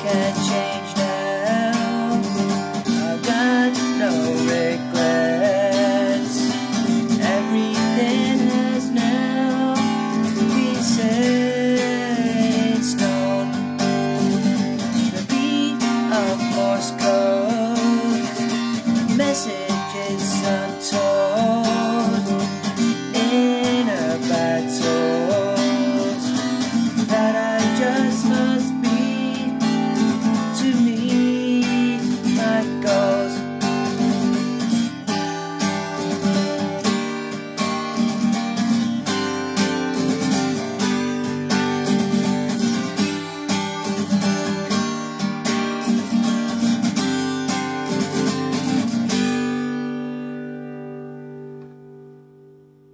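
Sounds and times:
acoustic guitar strumming: 0.0s - 52.9s.

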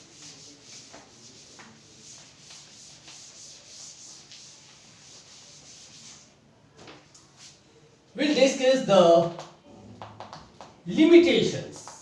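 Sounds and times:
duster rubbing on blackboard: 0.0s - 6.3s.

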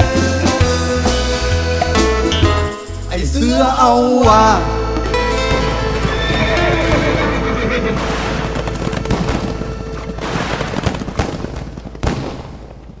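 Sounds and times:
music: 0.0s - 12.0s
gunshots: 8.0s - 13.0s.

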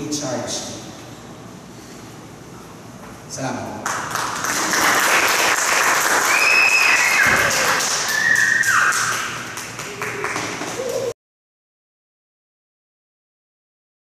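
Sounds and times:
audience applauding: 3.8s - 11.2s
short whistles: 8.1s - 9.3s.

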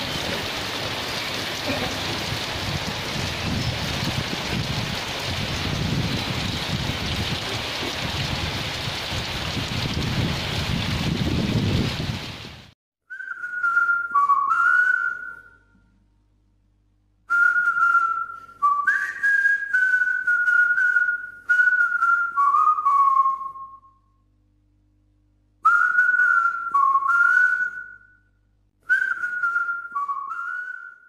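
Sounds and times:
person whistling a melody: 13.1s - 15.8s, 17.3s - 24.1s, 25.6s - 31.0s.

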